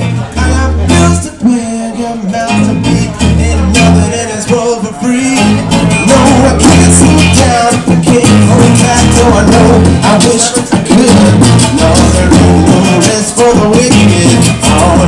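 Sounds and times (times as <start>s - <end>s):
electric guitar strumming: 0.0s - 15.0s
heavy bass line: 0.0s - 15.0s.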